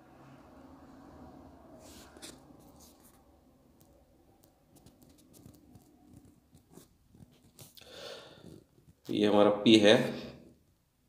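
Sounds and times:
low hum: 0.0s - 4.4s.

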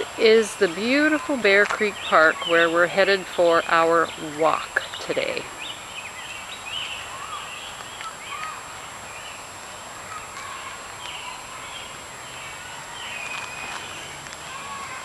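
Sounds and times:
birds chirping and singing: 0.2s - 14.3s
footsteps on dirt path: 13.0s - 14.6s.

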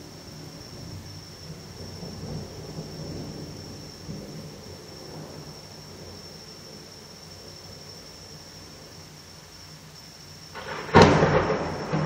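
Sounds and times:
distant thunder rumble: 0.0s - 6.8s, 10.5s - 12.0s.

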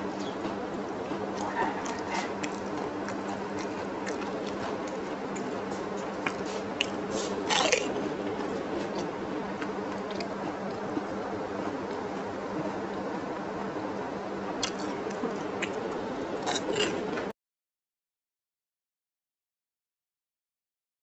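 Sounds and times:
person chewing wet food: 0.0s - 13.2s, 14.6s - 17.3s
crunch of bite: 1.4s - 10.8s, 14.6s - 15.8s, 16.4s - 17.0s.

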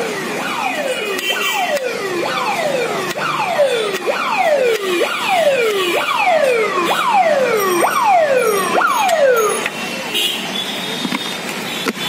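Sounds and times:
electronic siren whooping: 0.0s - 9.6s.

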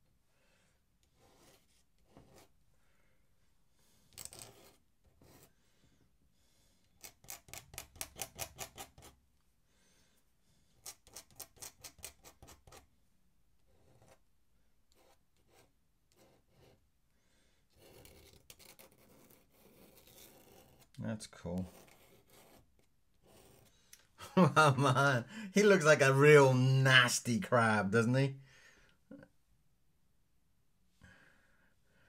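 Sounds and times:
metal pen nib scratching paper: 4.1s - 5.5s, 7.0s - 9.2s, 10.7s - 12.9s, 17.7s - 21.0s, 21.6s - 23.8s.

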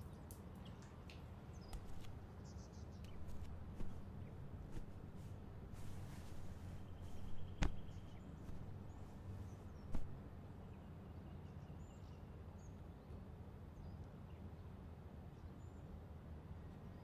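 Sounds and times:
steady low hum: 1.5s - 10.9s.

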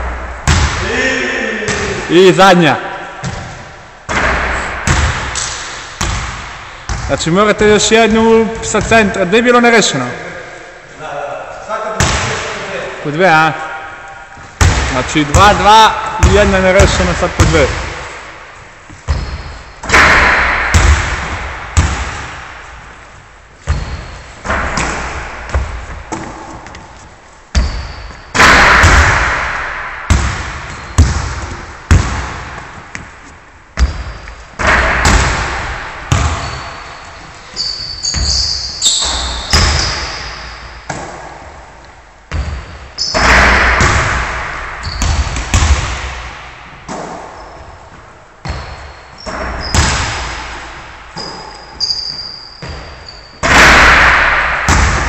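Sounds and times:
basketballs bouncing on wooden floor: 0.0s - 0.9s, 3.2s - 9.2s, 14.4s - 18.2s, 18.9s - 22.6s, 23.6s - 41.6s, 42.3s - 55.0s
ball striking rim and backboard: 0.1s - 0.8s, 3.2s - 7.1s, 12.0s - 12.5s, 14.4s - 18.3s, 19.0s - 22.6s, 23.6s - 26.8s, 27.5s - 33.1s, 33.8s - 36.9s, 37.8s - 41.5s, 42.3s - 47.6s, 48.4s - 55.0s
short high squeaks: 36.4s - 40.7s, 51.2s - 53.4s.

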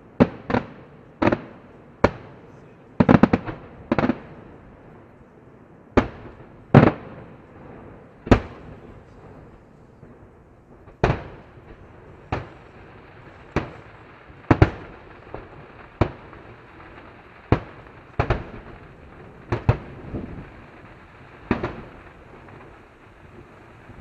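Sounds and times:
firework shells bursting: 10.8s - 24.0s.

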